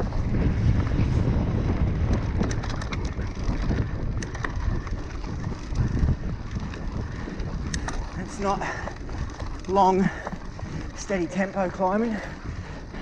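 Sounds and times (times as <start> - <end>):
bike tyre rumble: 0.0 - 13.0
wind noise on microphone: 0.0 - 13.0
bike rattling clicks: 0.3 - 13.0.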